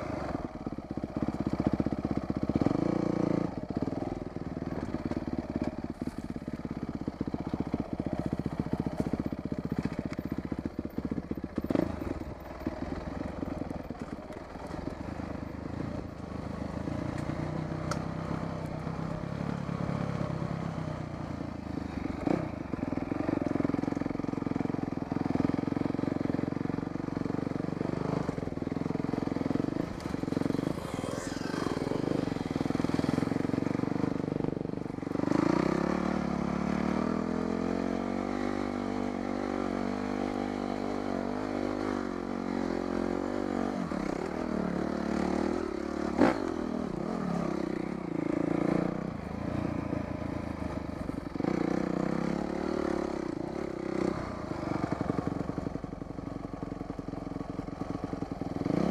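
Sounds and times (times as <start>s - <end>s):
dirt bike engine revving: 30.0s - 33.8s.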